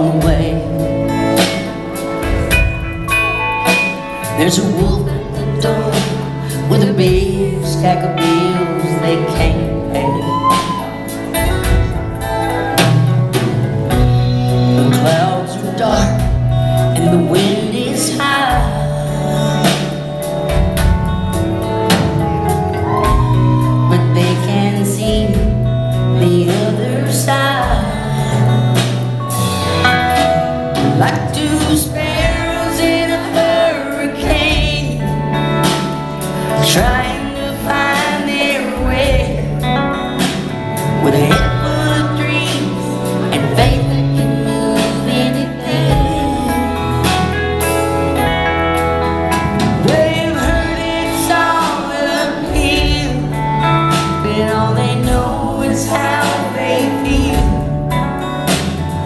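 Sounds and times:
woman singing: 0:00.0 - 0:01.5, 0:04.3 - 0:20.1, 0:22.8 - 0:29.2, 0:30.7 - 0:47.8, 0:49.6 - 0:58.8
electric guitar: 0:00.0 - 0:59.0
live country band playing: 0:00.0 - 0:59.0.

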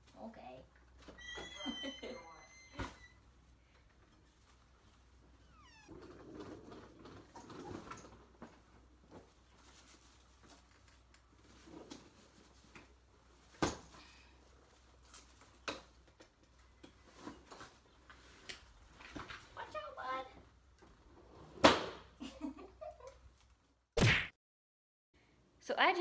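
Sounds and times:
cat meowing: 0:05.3 - 0:06.0.

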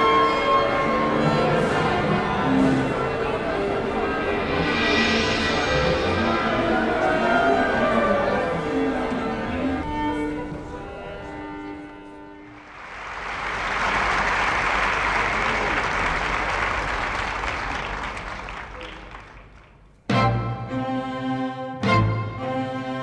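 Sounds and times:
orchestral strings music: 0:00.0 - 0:12.9, 0:20.1 - 0:23.0
audience applause: 0:12.5 - 0:19.8.

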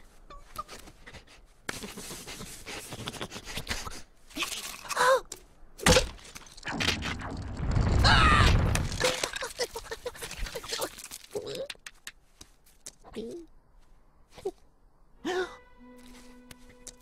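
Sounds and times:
light pattering steps: 0:08.7 - 0:14.8.

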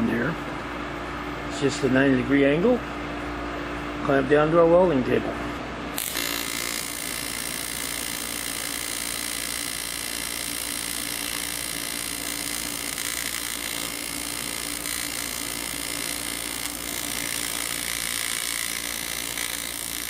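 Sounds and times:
welding arc buzzing: 0:05.9 - 0:20.0.

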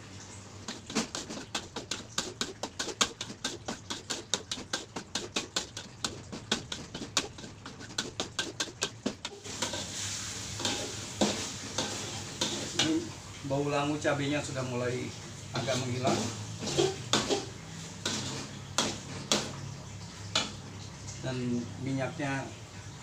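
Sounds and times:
hiss of frying: 0:00.0 - 0:22.9
metal spatula scraping a wok: 0:00.6 - 0:13.1, 0:15.6 - 0:19.4.

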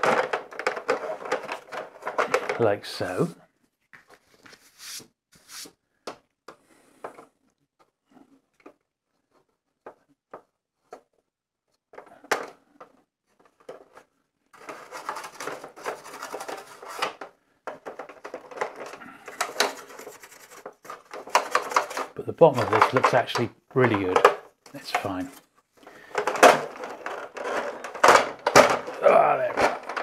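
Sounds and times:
plastic toy clicks and knocks: 0:00.0 - 0:02.7, 0:14.6 - 0:25.3, 0:26.0 - 0:30.0.

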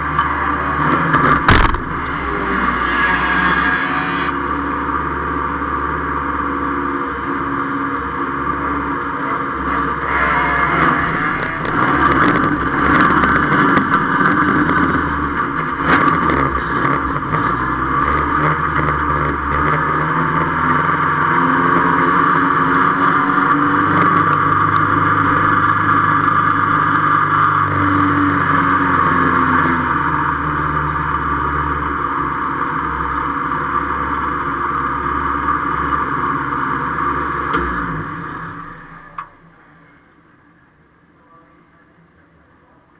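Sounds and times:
race car engine running hard: 0:00.0 - 0:40.9
sharp knocks and clatters: 0:00.1 - 0:03.2.

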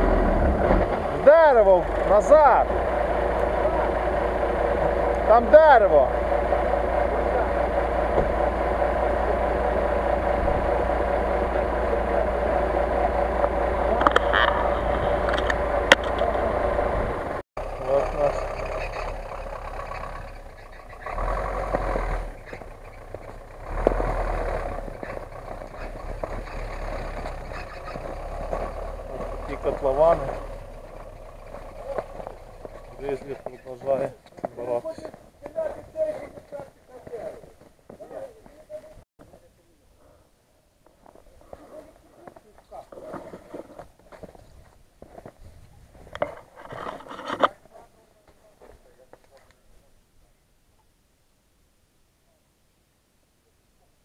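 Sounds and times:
suv engine revving: 0:00.0 - 0:34.2.

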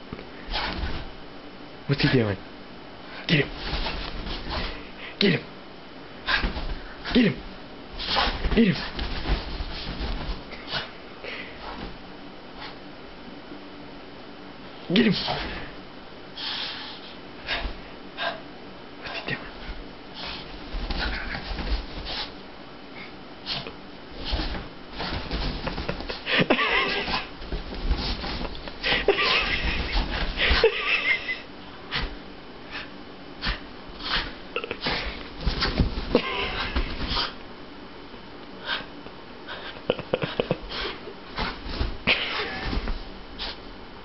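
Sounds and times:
scuffling and rustling on bedding: 0:03.4 - 0:05.0, 0:06.3 - 0:12.8, 0:19.4 - 0:22.5, 0:23.4 - 0:31.4, 0:32.0 - 0:37.6, 0:40.5 - 0:44.0.

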